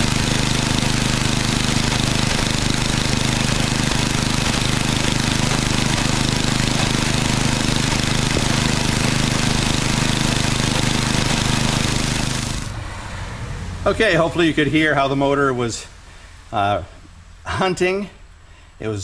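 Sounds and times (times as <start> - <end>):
snowblower engine running: 0.0 - 12.8.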